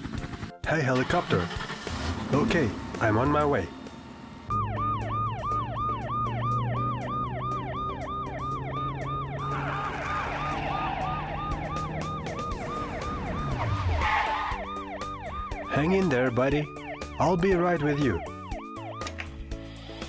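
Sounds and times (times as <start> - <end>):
truck engine hum: 0.0 - 17.2
police siren yelping: 4.5 - 19.3.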